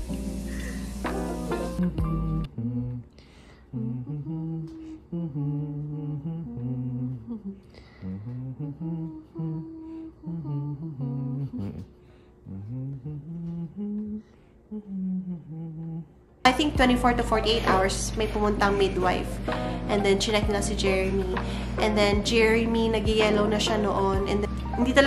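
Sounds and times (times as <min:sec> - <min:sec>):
man humming: 0:00.1 - 0:16.2.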